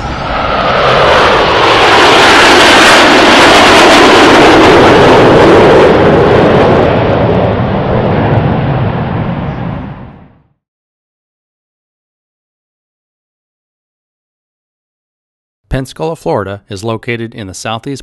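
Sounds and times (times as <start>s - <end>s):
jet roar flying past: 0.0s - 10.5s.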